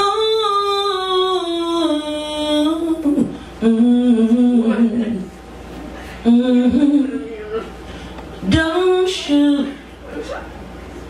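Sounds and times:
woman singing wordless notes: 0.0s - 5.3s, 6.2s - 7.8s, 8.4s - 10.0s.

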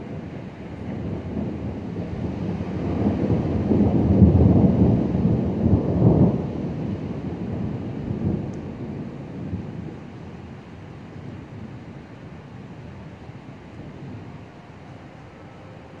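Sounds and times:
rolling thunder: 0.0s - 16.0s.

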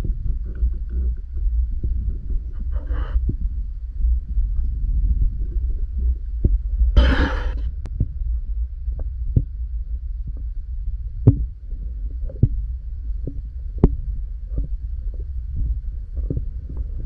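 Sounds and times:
underwater low rumble: 0.0s - 17.0s
hissing rush: 7.0s - 7.6s.

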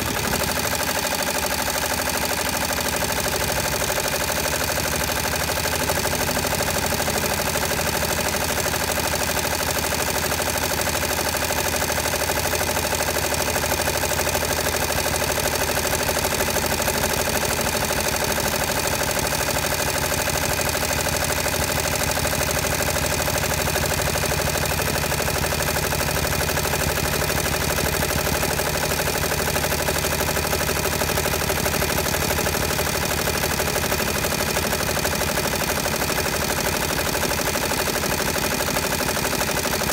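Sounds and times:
embroidery machine stitching: 0.0s - 39.9s.

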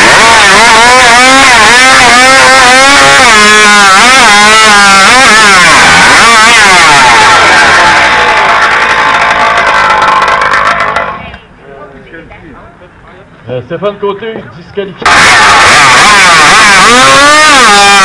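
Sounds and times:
chainsaw cutting at full throttle: 0.0s - 7.0s, 15.1s - 18.0s.

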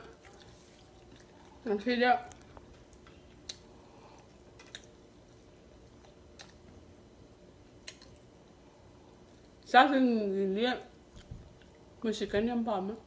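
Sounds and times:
person chewing food: 0.0s - 9.6s
faint steady hum: 0.0s - 13.0s.

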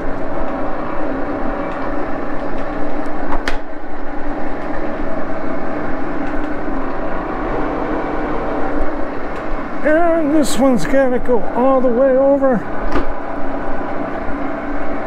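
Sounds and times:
lathe motor humming: 4.3s - 11.9s.

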